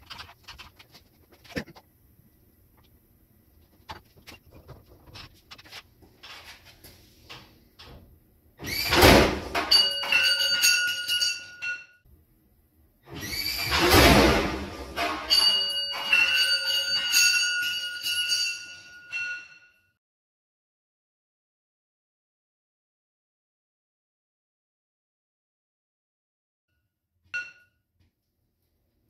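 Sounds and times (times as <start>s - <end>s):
tools clinking: 9.5s - 12.0s, 15.0s - 19.7s
heavy metal crash with ringing: 13.6s - 17.2s.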